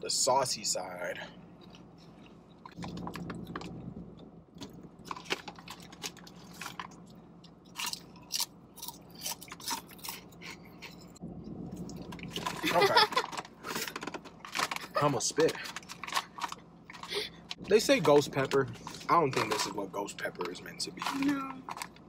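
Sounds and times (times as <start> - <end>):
crunching potato chips: 4.6 - 11.1.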